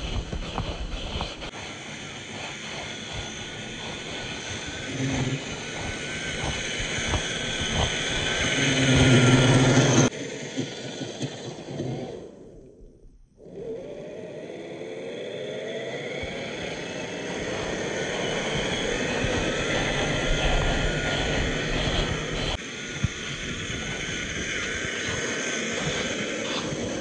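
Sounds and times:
electric motor whining: 0.0s - 27.0s.

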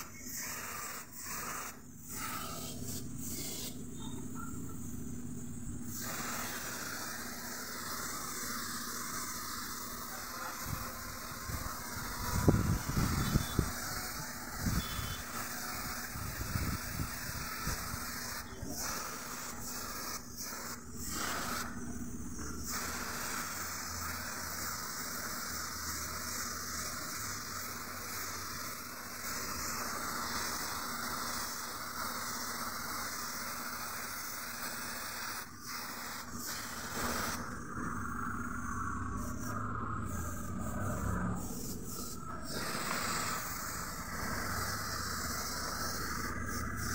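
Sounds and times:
paint spray gun hissing: 0.0s - 46.9s.

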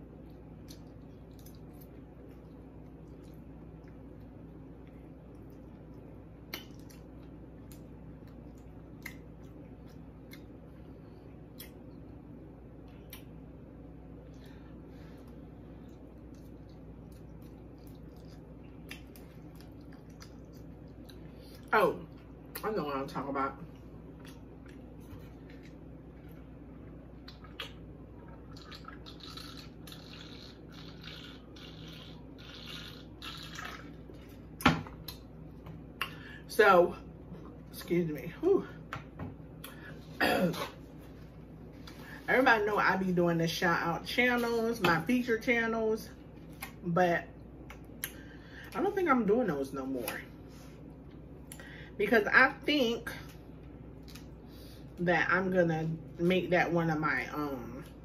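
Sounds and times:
steady low hum: 0.0s - 58.0s
wet squishy chewing: 0.2s - 10.6s, 15.2s - 22.6s, 23.7s - 35.3s
person gulping a drink: 27.2s - 34.4s.

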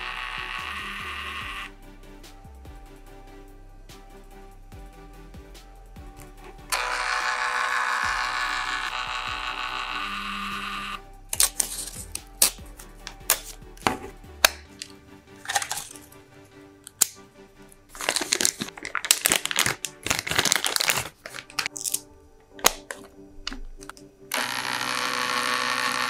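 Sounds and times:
printer feed motor humming: 0.0s - 1.7s, 6.7s - 11.0s, 24.3s - 26.0s
plastic lid clicks and snaps: 11.4s - 14.9s, 22.6s - 24.0s
paper rustling and crinkling: 15.4s - 16.0s, 17.9s - 23.2s.

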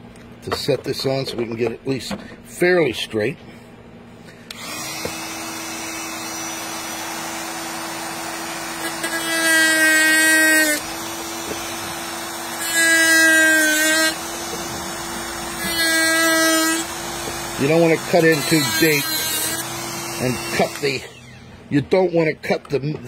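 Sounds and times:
rotary tool cutting plastic: 4.5s - 21.4s.

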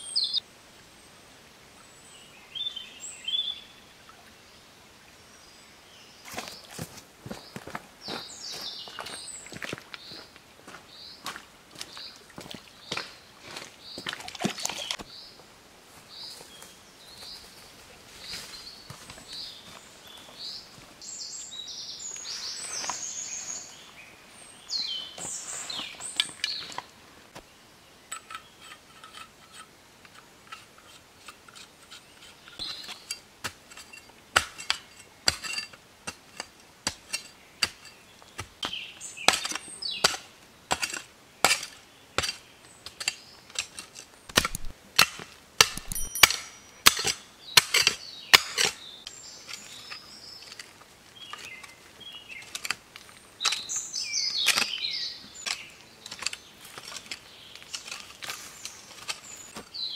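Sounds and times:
birds chirping: 0.0s - 0.4s, 5.3s - 15.4s, 16.1s - 29.2s, 31.9s - 33.2s, 45.7s - 59.9s
mattock striking soil: 30.5s - 48.9s, 49.5s - 59.8s.

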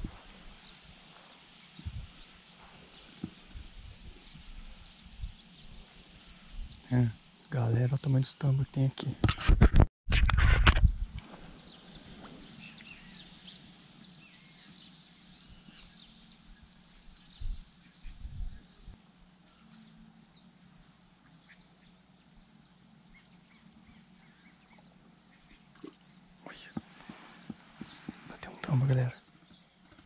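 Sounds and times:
faint birdsong chirps: 0.0s - 9.2s, 11.0s - 30.0s
low steady hum: 10.9s - 29.9s.

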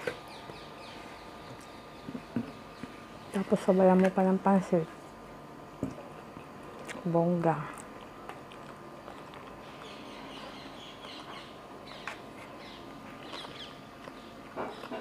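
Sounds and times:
person eating: 7.7s - 10.5s.

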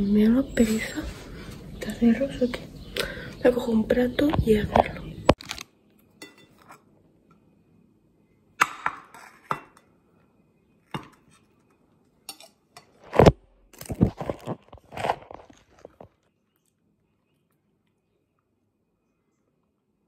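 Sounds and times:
food wrapper rustling: 5.4s - 5.8s, 13.0s - 16.4s.

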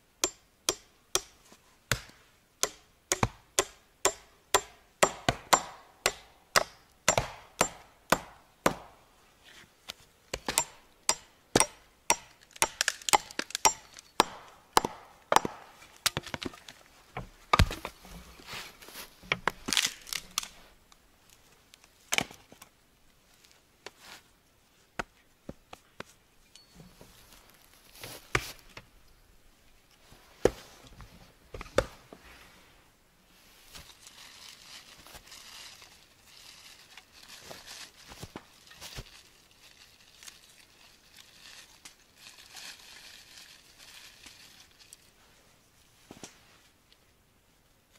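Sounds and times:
hatchet chopping wood: 0.2s - 9.0s, 10.3s - 16.5s.

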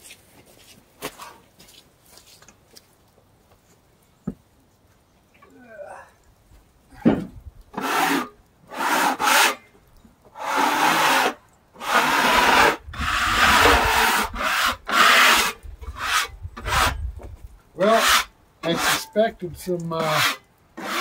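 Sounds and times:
scraping on sawn log: 7.7s - 9.7s, 10.3s - 19.2s, 20.0s - 21.0s.

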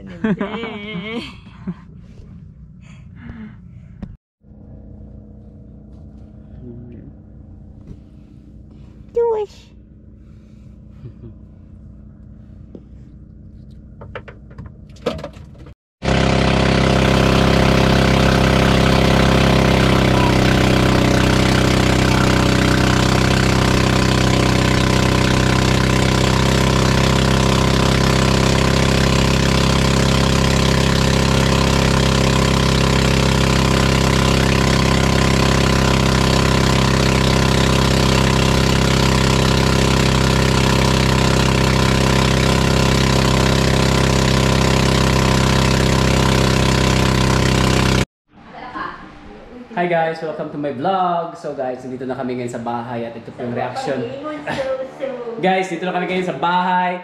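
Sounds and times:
boat engine running: 4.4s - 14.9s, 16.0s - 48.1s.

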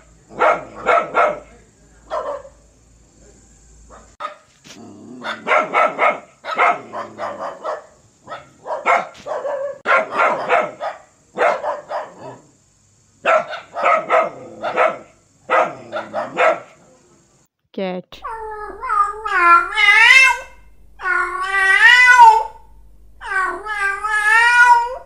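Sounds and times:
dog barking: 0.0s - 2.7s, 3.8s - 4.5s, 5.2s - 12.5s, 13.2s - 16.8s.

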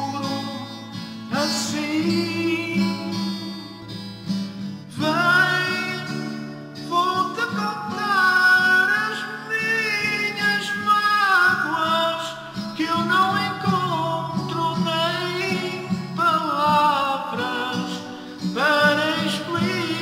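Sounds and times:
man singing: 0.0s - 4.1s, 4.9s - 20.0s
strummed acoustic guitar: 0.0s - 20.0s.

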